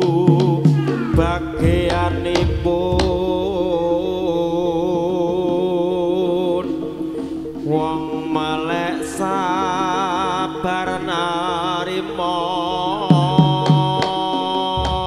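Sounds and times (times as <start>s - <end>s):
drum strokes: 0.0s - 5.5s, 14.8s - 15.0s
gamelan pitched tones: 0.1s - 15.0s
wavering held melody note: 1.0s - 13.3s.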